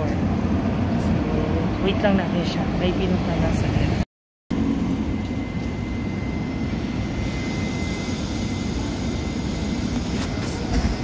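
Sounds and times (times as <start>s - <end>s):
faint high whine: 4.5s - 11.0s.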